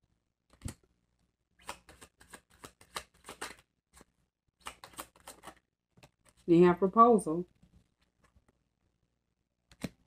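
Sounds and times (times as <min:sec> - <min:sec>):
cards being shuffled: 0:01.6 - 0:06.4.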